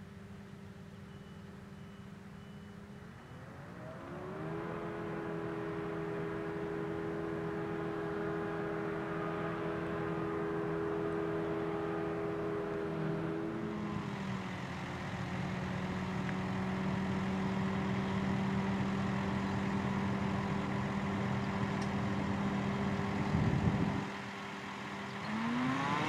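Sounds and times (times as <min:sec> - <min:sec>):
tractor diesel engine revving: 0:24.7 - 0:26.0.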